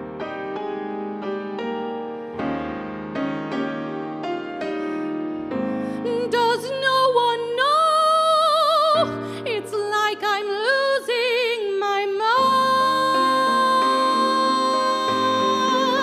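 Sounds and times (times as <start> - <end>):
grand piano: 0.0 - 16.0
woman singing with vibrato: 6.0 - 16.0.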